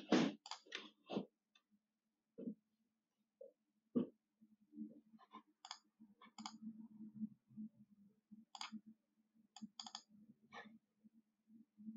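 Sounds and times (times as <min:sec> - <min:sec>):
computer mouse clicking: 0:00.4 - 0:00.9, 0:05.6 - 0:06.6, 0:08.5 - 0:08.8, 0:09.6 - 0:10.1
faint low hum: 0:03.4 - 0:11.9.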